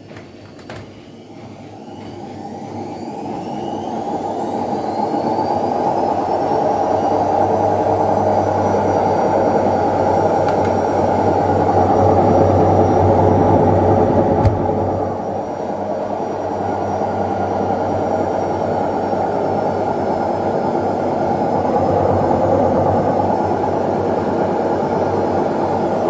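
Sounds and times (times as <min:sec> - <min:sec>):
washing machine motor whine: 0:00.0 - 0:26.0
spinning drum rumble: 0:01.3 - 0:26.0.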